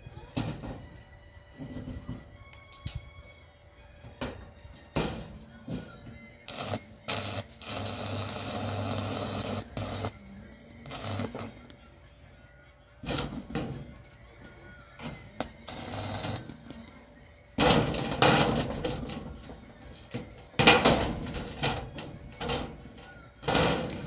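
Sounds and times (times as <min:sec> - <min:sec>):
electric arc crackling and sizzling: 0:06.5 - 0:11.8, 0:15.6 - 0:16.8.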